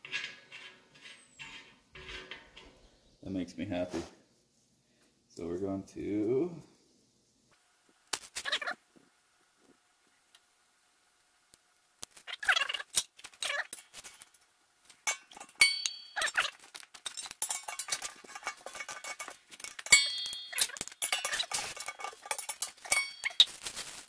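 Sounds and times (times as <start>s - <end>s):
short metallic rings: 15.0s - 23.5s
metal clinking: 15.0s - 23.6s.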